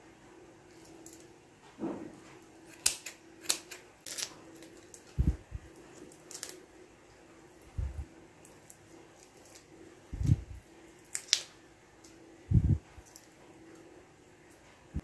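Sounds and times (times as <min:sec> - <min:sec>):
faint steady hum: 0:00.0 - 0:15.0
shrimp shells clicking and snapping: 0:02.7 - 0:05.1, 0:06.1 - 0:06.6, 0:11.0 - 0:12.2.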